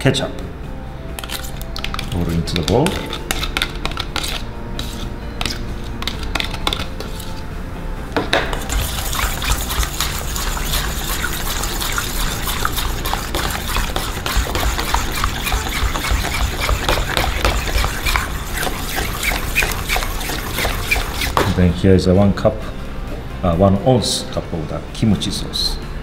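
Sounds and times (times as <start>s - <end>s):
spoon scraping and tapping: 1.2s - 7.4s, 8.2s - 21.5s
wet stirring: 1.2s - 7.4s, 8.3s - 21.6s.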